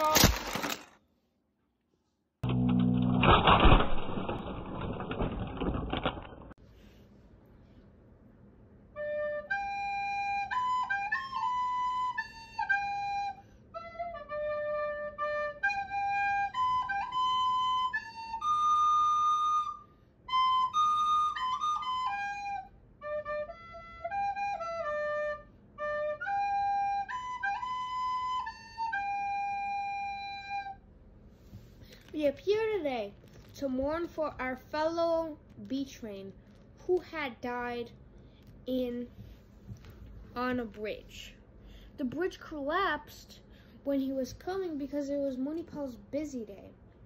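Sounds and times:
slow woodwind melody: 8.9s - 30.8s.

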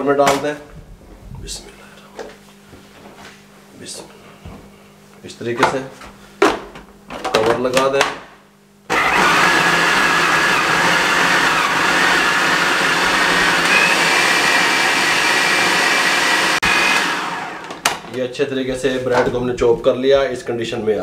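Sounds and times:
food processor chopping bread: 8.9s - 18.0s.

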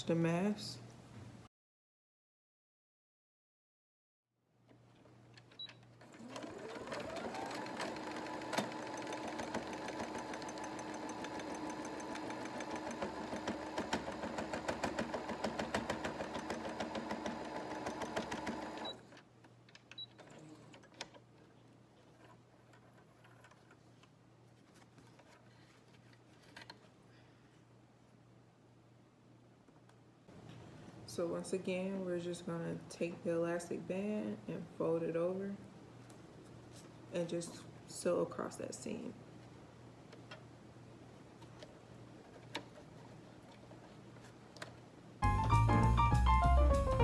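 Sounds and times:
sewing machine stitching: 5.9s - 19.2s.

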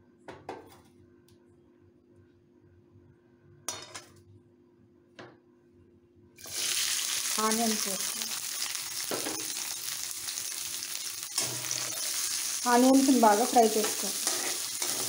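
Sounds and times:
onions sizzling in hot oil: 6.4s - 15.0s.

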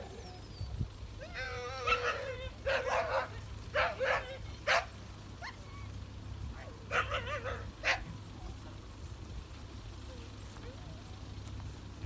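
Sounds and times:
dog barking: 1.8s - 5.0s, 6.6s - 8.1s.

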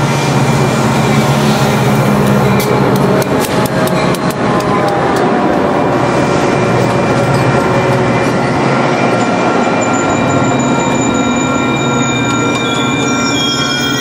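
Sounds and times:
diesel locomotive passing: 0.0s - 14.0s
train coaches rolling on steel wheels: 0.0s - 14.0s
high brake squeal: 9.6s - 14.0s.

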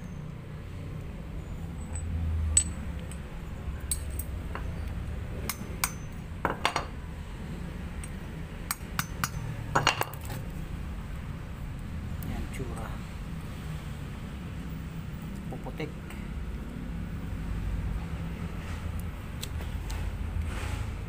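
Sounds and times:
metallic clinks and knocks: 1.7s - 7.0s, 8.7s - 10.4s.

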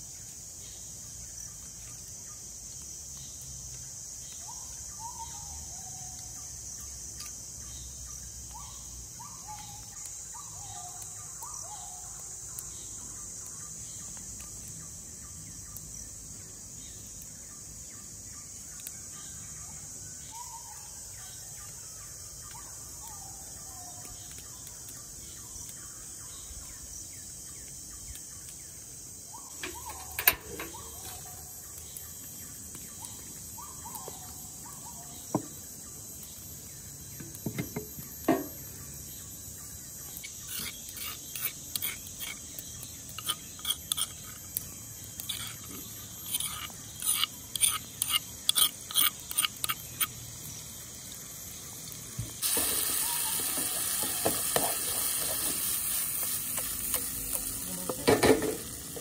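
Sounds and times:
insects chirring: 0.0s - 59.0s
bird chirps: 4.3s - 6.4s, 7.2s - 15.8s, 18.7s - 51.7s
metal spoon scraping stone mortar: 40.2s - 50.2s.

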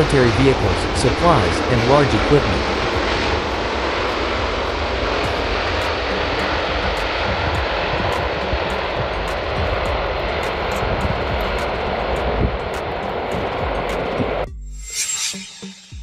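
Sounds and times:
jet engines at takeoff power: 0.0s - 15.8s.

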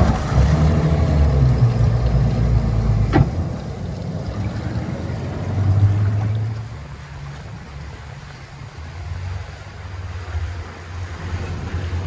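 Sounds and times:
outboard engines running at low revs: 0.0s - 12.0s
sharp clunk: 3.1s - 3.4s.

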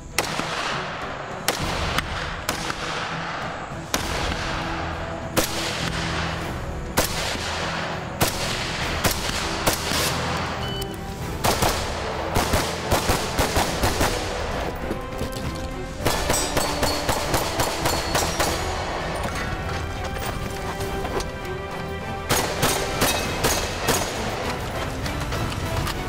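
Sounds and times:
pistol shots: 0.0s - 10.6s, 11.3s - 14.7s, 16.0s - 19.4s, 22.2s - 24.5s
background music: 0.0s - 26.0s
rifle gunfire: 0.1s - 4.7s, 5.3s - 10.4s, 11.4s - 14.7s, 16.0s - 19.1s, 22.3s - 24.4s.

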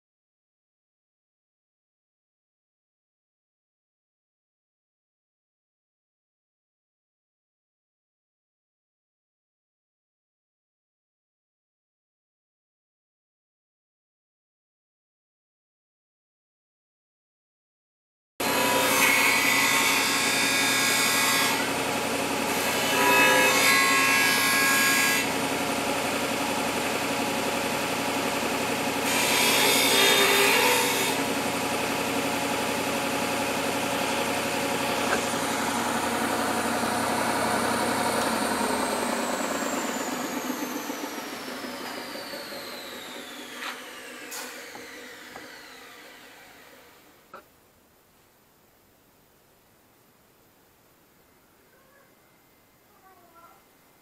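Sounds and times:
sander running: 18.4s - 47.2s
motor winding down: 23.9s - 47.2s.

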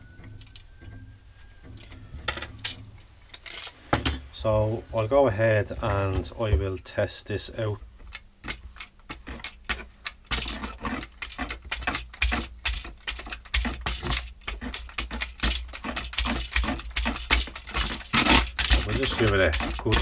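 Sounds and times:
paint roller clicking in plastic tray: 8.1s - 20.0s.

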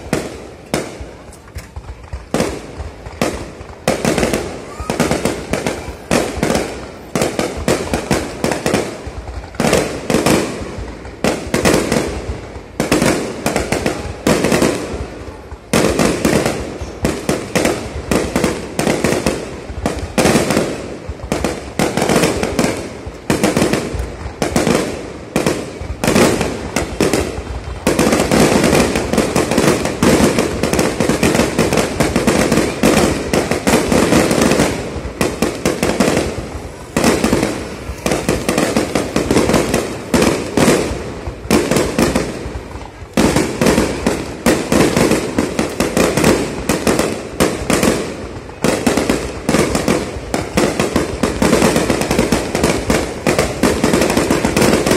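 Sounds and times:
firework shells bursting: 25.7s - 54.9s.

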